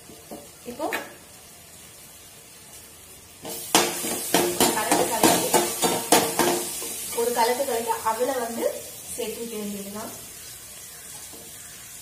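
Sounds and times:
tempering sizzling in pan: 0:00.0 - 0:12.0.

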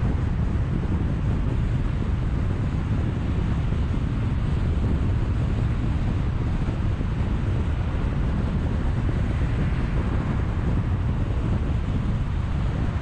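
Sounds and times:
low road rumble: 0:00.0 - 0:13.0
wind rush on microphone: 0:00.0 - 0:13.0.

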